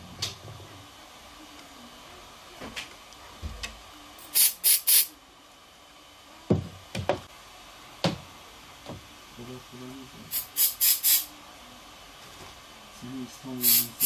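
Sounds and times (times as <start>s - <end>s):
spray can hissing: 4.2s - 5.1s, 10.3s - 11.3s, 13.6s - 14.0s.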